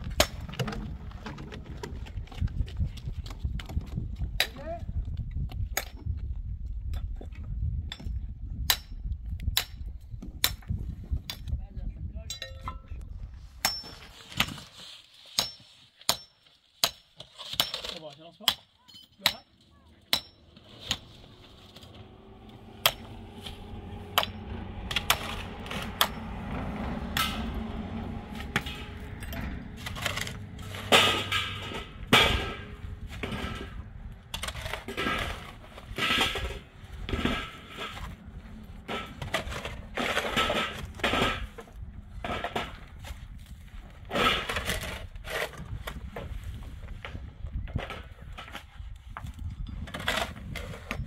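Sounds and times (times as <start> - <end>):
low hum: 20.2 - 42.8.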